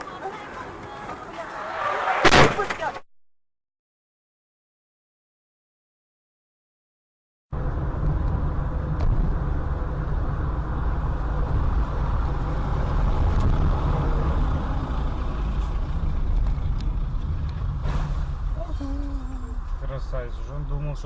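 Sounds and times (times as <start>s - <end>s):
city traffic: 0.0s - 2.4s, 7.5s - 21.0s
car engine rumble: 7.5s - 21.0s.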